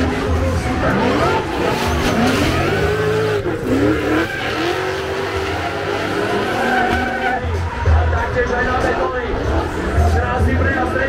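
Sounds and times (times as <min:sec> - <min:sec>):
car engines revving: 0:00.0 - 0:11.0
tyres squealing: 0:00.9 - 0:07.7.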